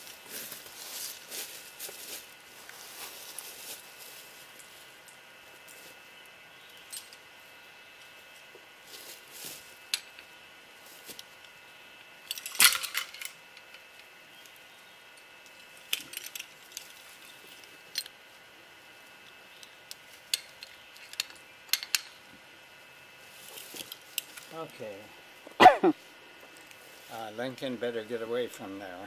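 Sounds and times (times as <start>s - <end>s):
stick rustling dry leaves: 0.0s - 14.6s, 23.1s - 25.0s, 25.8s - 27.4s.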